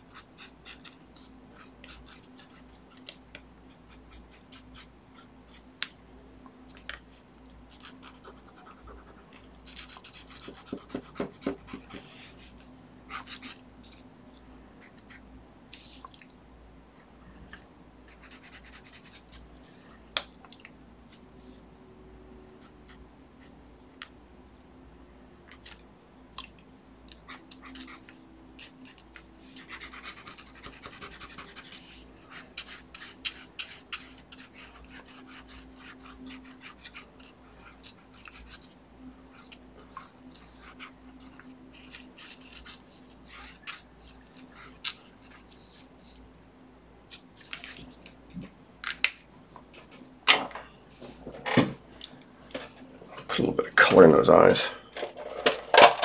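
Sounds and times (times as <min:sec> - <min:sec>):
pen scratching on paper: 0:07.8 - 0:12.5, 0:27.2 - 0:41.0, 0:41.7 - 0:46.1.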